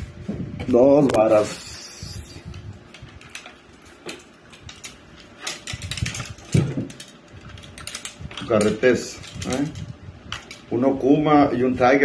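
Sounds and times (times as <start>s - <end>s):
fishing reels clicking and rattling: 1.6s - 10.6s.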